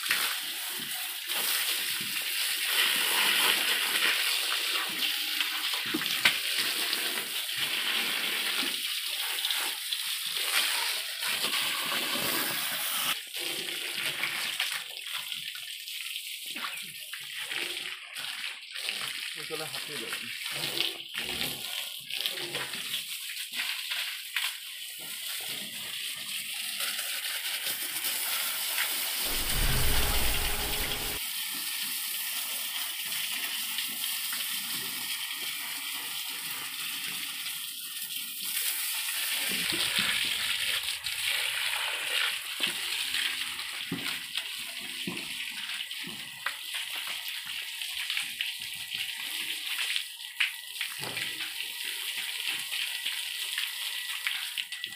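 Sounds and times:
hose water spraying: 0.0 - 13.2
loud low rumble: 29.3 - 31.2.

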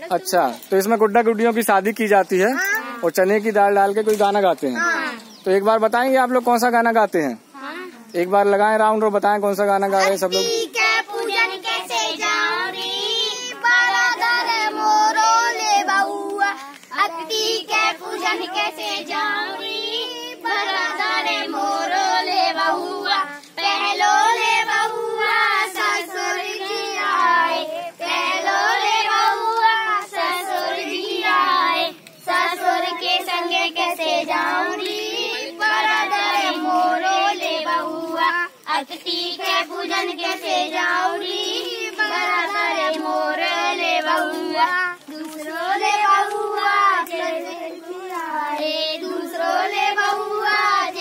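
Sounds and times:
children singing in unison: 10.3 - 51.0.

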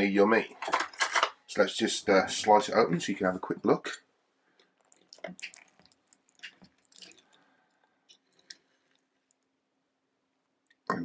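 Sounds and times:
soft food squelches: 4.5 - 10.9.

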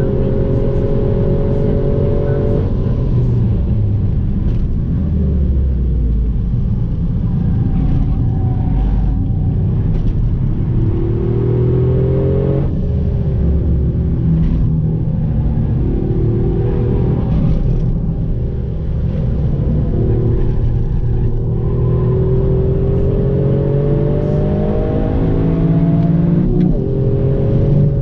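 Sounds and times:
car engine revving: 0.0 - 28.0
road and tyre rumble: 0.0 - 28.0.

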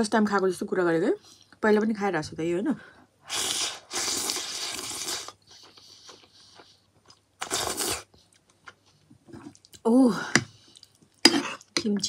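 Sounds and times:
noodles slurped: 3.3 - 6.8, 7.4 - 8.2
soft chewing: 4.2 - 12.0.

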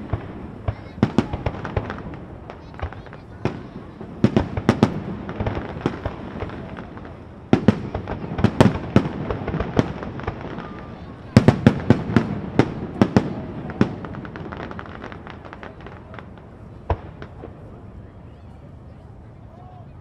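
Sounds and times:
fireworks bangs and crackles: 0.0 - 19.8.

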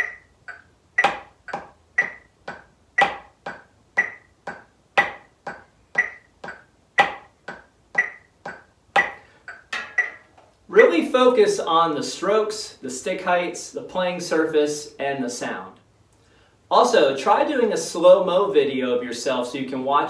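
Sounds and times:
drumsticks on practice pad: 0.0 - 10.5.

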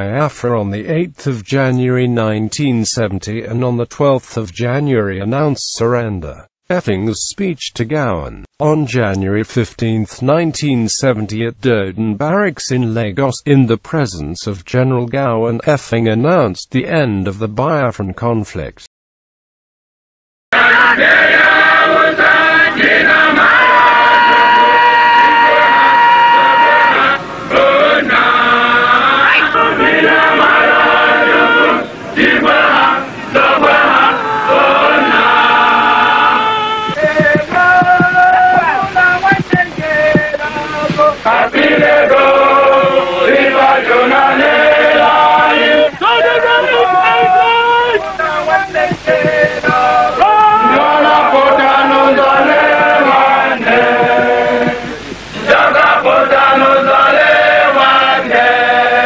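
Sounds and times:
group singing in chorus: 20.5 - 59.0.

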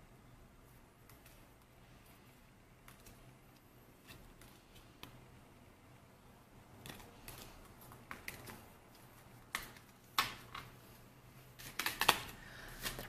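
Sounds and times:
card stock tapping and clicking: 6.8 - 10.7, 11.6 - 13.0.

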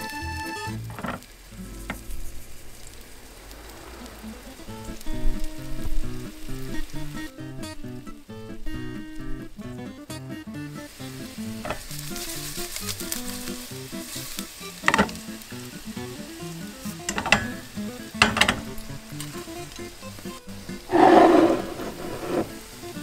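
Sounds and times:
garlic sizzling in oil: 0.0 - 23.0
frying pan knocks: 11.6 - 12.0, 14.9 - 15.2, 17.1 - 18.9.

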